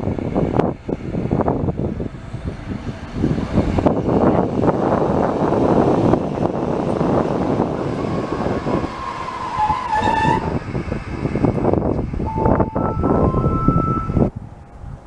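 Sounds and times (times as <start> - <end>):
train wheels rumbling on rails: 0.0 - 15.0
high metallic wheel squeals: 8.0 - 10.6.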